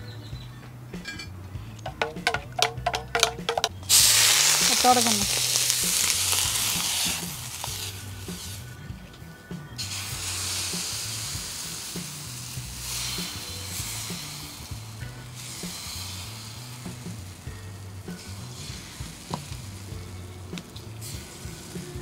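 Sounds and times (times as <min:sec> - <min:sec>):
batter sizzling on hot griddle: 0:03.8 - 0:08.8, 0:09.8 - 0:22.0.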